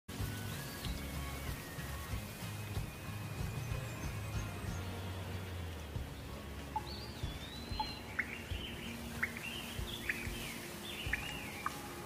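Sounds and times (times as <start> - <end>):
steady background hiss: 0.1 - 12.0
songbird whistling: 0.3 - 5.0, 6.7 - 12.0
bird sharp chirps: 6.7 - 11.8.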